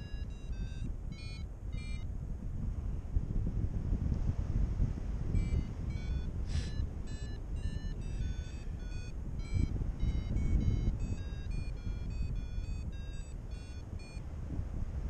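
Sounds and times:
variometer beeping: 0.0 - 2.1, 5.3 - 14.3
wind buffeting microphone: 0.0 - 15.0.

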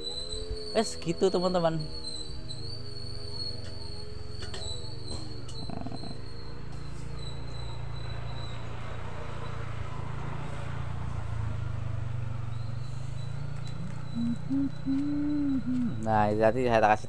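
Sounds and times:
insects chirring: 0.0 - 8.6, 12.4 - 17.0
constant low hum: 12.4 - 17.0.

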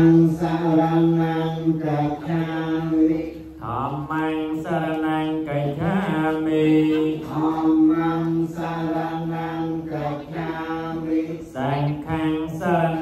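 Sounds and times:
men chanting in unison: 0.0 - 13.0.

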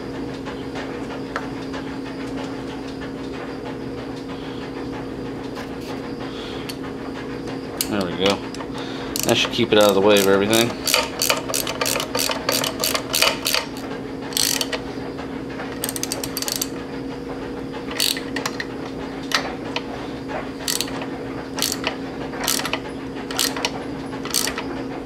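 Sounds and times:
ratchet wrench clicking: 9.2 - 14.8, 15.8 - 16.7, 17.9 - 18.6, 20.6 - 21.0, 21.6 - 24.6.

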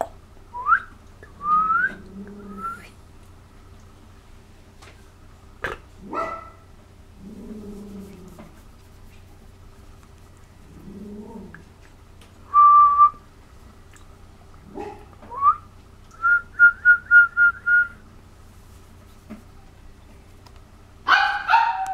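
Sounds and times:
person whistling: 0.6 - 2.0, 2.6 - 2.9, 12.5 - 13.2, 15.4 - 15.6, 16.2 - 18.0.

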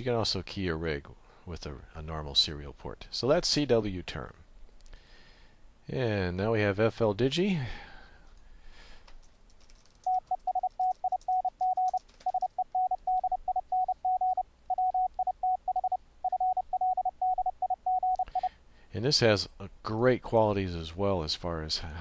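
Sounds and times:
faint keyboard clicks: 8.3 - 12.6
morse code tone: 10.1 - 18.5.

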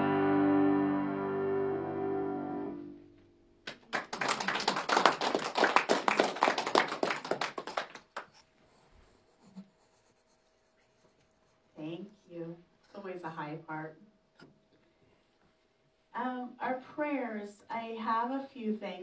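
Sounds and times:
piano chord: 0.0 - 3.2
small group clapping: 3.6 - 8.4.

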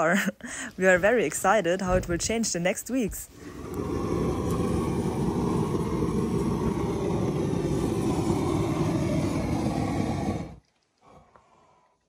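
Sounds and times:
gas torch burning: 3.3 - 11.2.

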